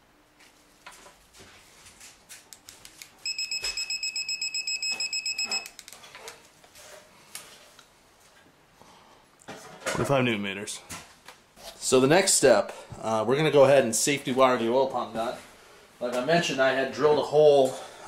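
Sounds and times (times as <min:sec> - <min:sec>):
torque wrench beeping rapidly: 0:03.3 - 0:05.7.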